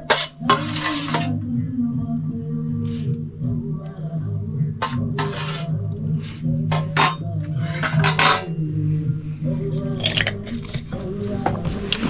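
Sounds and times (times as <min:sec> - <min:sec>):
metal spoon clinking on plate: 0:00.0 - 0:01.4, 0:04.8 - 0:05.7, 0:06.7 - 0:08.5.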